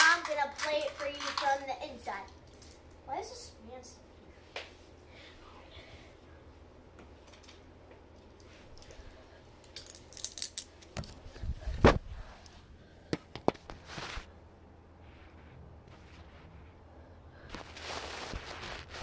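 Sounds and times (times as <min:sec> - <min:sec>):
marbles rattling down plastic track: 0:00.0 - 0:01.6, 0:09.8 - 0:10.7.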